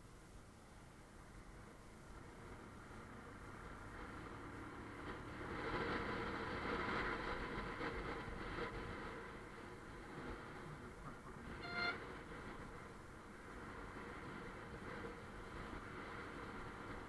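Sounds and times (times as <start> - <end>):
road noise: 0.0 - 17.0.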